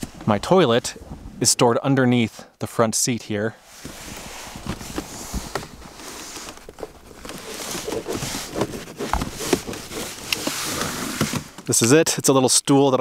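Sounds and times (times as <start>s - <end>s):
fabric bag rustling and scraping: 3.6s - 11.6s.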